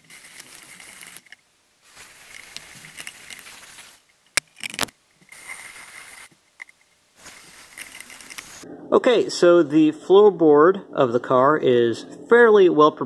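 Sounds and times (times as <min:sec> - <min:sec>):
drill spinning wire brush on steel: 0:00.0 - 0:06.4, 0:07.2 - 0:08.6
rattle of clicks: 0:02.2 - 0:08.6.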